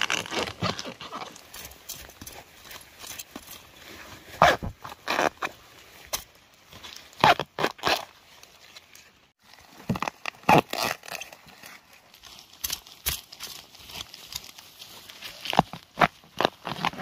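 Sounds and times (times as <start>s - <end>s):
dry leaves rustling: 11.3s - 16.7s.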